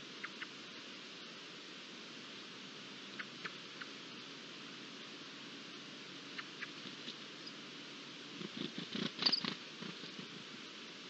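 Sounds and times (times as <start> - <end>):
faint steady hiss: 0.0 - 11.0
bird rattling call: 8.4 - 10.2.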